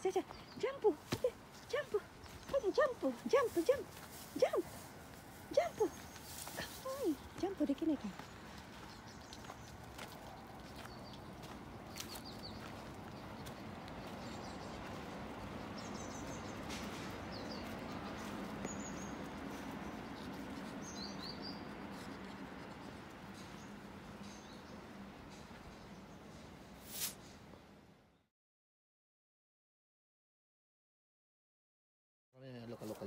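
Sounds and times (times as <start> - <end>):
bird chirps: 15.6 - 22.1.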